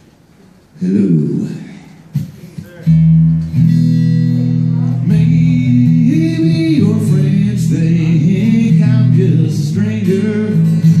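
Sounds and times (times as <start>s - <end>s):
guitar playing: 0.9s - 11.0s
man singing into a microphone: 4.6s - 11.0s.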